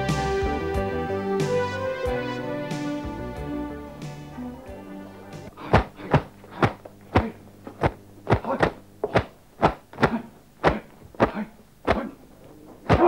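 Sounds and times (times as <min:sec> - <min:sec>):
sharp practice strike whacks: 0:05.6 - 0:12.2.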